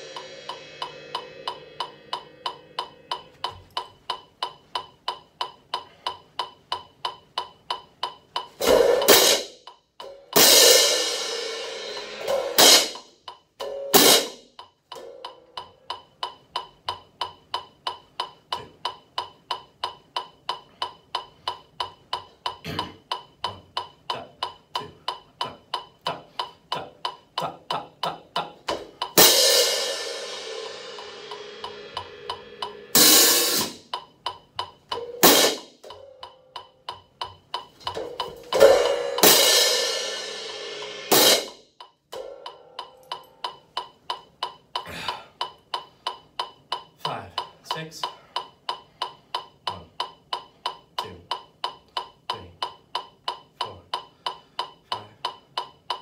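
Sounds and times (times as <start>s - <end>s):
hand cymbals crashing: 0.0s - 3.6s, 8.6s - 15.6s, 29.2s - 33.9s, 34.9s - 36.6s, 38.0s - 41.6s, 42.2s - 43.7s
steady metronome click: 0.0s - 56.0s.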